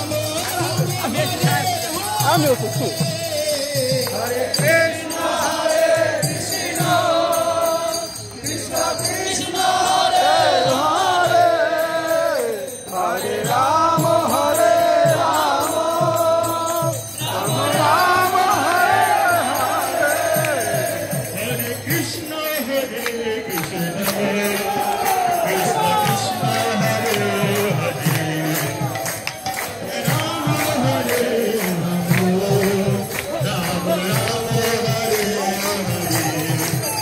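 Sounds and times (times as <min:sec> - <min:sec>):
rhythmic beat: 0:00.0 - 0:12.2, 0:12.9 - 0:37.0
group singing a chant: 0:00.0 - 0:37.0
hand clapping: 0:23.0 - 0:25.3, 0:26.0 - 0:37.0.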